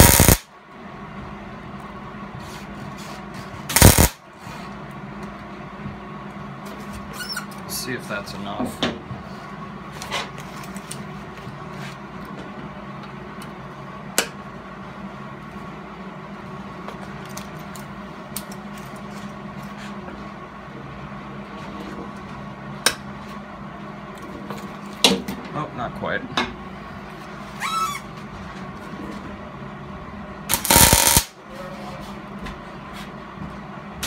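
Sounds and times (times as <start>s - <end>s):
steady hum with high tone: 0.0s - 34.0s.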